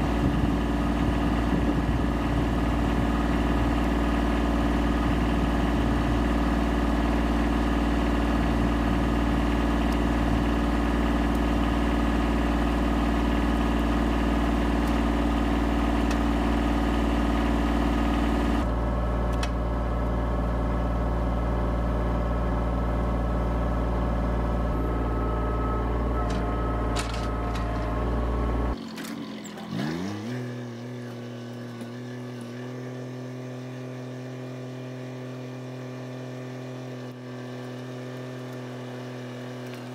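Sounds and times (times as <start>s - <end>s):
tractor diesel engine idling: 0.0s - 29.9s.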